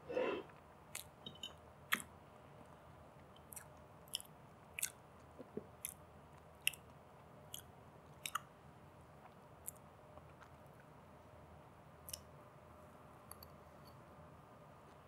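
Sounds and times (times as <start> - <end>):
chewing: 3.4 - 6.0.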